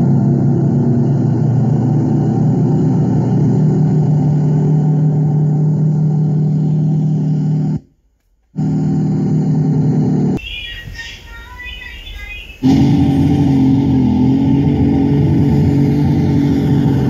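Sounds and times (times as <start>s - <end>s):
bulldozer diesel engine running: 0.0s - 7.9s, 8.6s - 17.0s.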